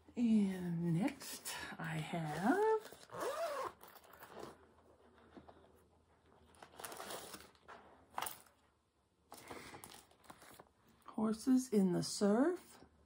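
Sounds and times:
plastic and paper crinkling: 2.0s - 8.7s, 9.3s - 10.8s.

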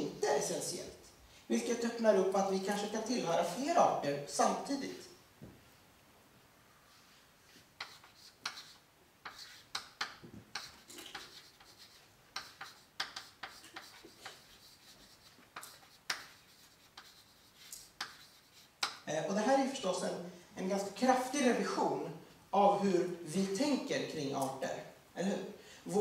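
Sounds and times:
chalk writing on blackboard: 7.4s - 19.0s.

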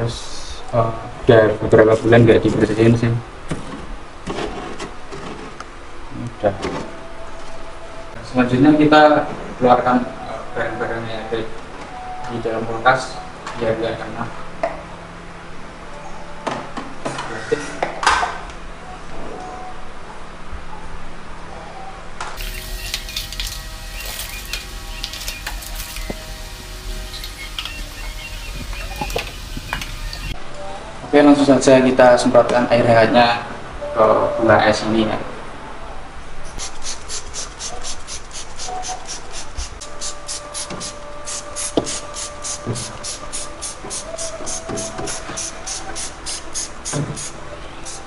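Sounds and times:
spray bottle hissing: 22.4s - 30.3s, 36.6s - 48.0s
refrigerator hum: 22.4s - 30.4s.

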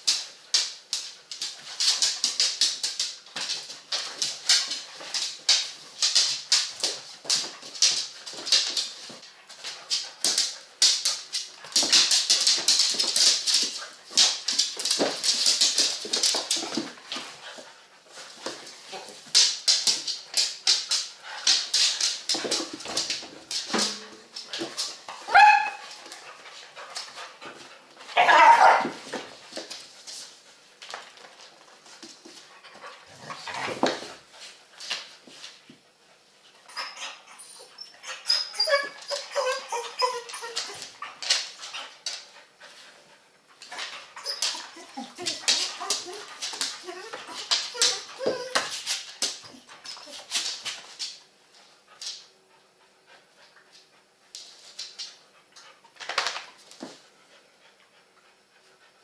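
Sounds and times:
paws scuffling and clicking: 0.0s - 58.9s
dog yelp: 25.2s - 25.9s, 28.2s - 29.0s, 36.7s - 41.1s
dog barking: 28.2s - 29.0s
dog whimpering: 36.7s - 41.0s, 44.2s - 48.7s.

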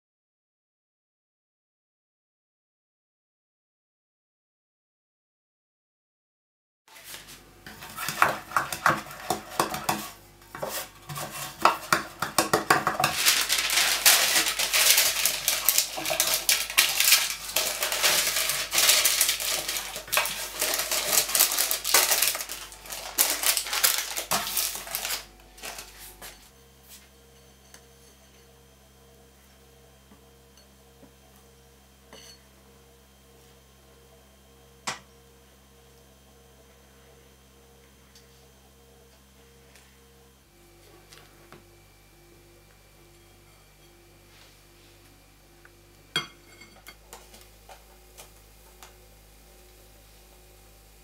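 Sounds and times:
faint steady hum: 7.0s - 51.0s
baking pan clattering: 7.7s - 25.8s, 46.2s - 46.9s
parchment paper crackling: 10.9s - 26.4s.

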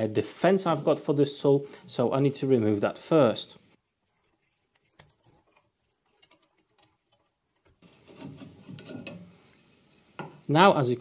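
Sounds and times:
metal rail scraping: 7.8s - 9.9s.

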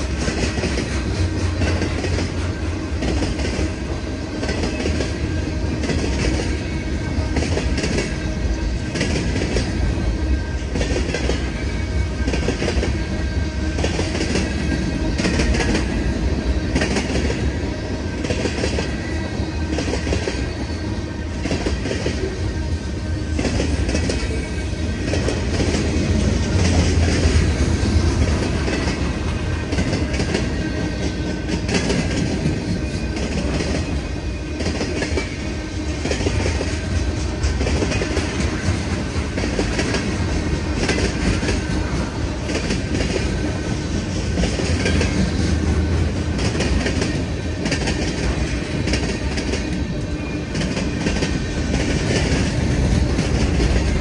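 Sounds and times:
train cars rumbling past: 0.0s - 54.0s.

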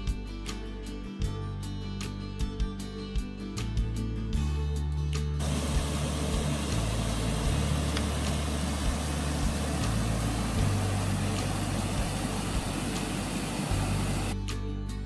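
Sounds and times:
music bass line: 3.8s - 15.0s
water pouring over spillway: 5.4s - 14.4s.

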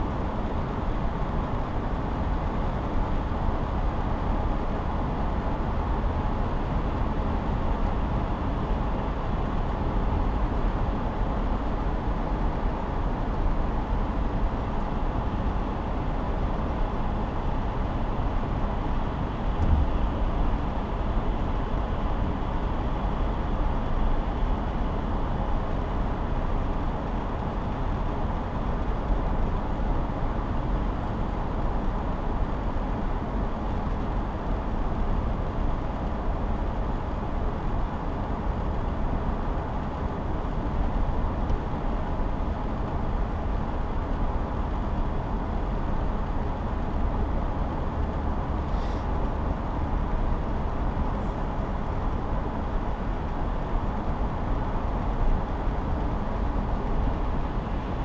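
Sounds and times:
car road and engine noise: 0.0s - 58.0s
low thump: 19.6s - 19.9s.

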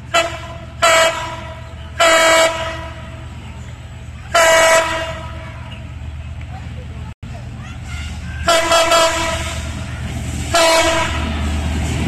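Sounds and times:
locomotive horn blasts: 0.0s - 3.2s, 4.3s - 5.5s, 7.9s - 9.9s, 10.5s - 11.5s
steady low train rumble: 0.0s - 12.0s.

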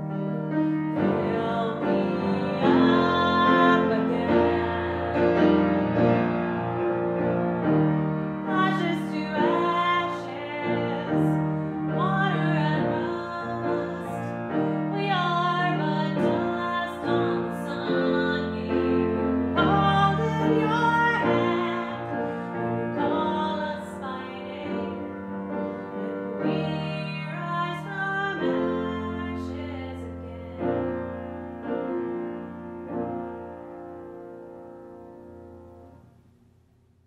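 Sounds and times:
grand piano playing: 0.0s - 36.0s
woman singing: 0.9s - 5.7s, 8.4s - 31.1s.

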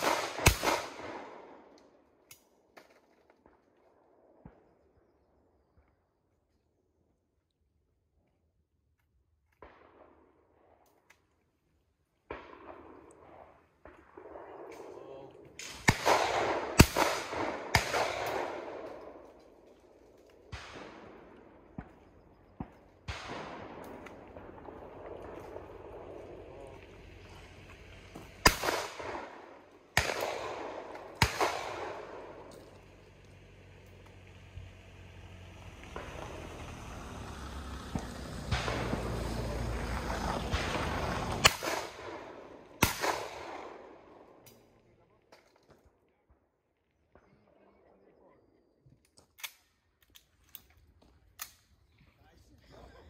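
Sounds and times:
gunshot echo: 0.0s - 1.7s, 12.2s - 19.3s, 20.5s - 26.6s, 28.4s - 32.5s, 37.9s - 39.5s, 40.4s - 44.4s
shotgun shot: 0.0s - 1.7s, 15.6s - 19.3s, 20.5s - 26.4s, 28.4s - 32.5s, 37.9s - 39.5s, 40.4s - 44.3s.

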